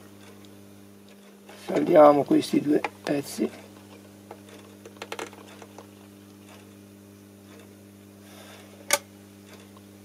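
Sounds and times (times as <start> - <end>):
electrical hum: 0.0 - 10.0.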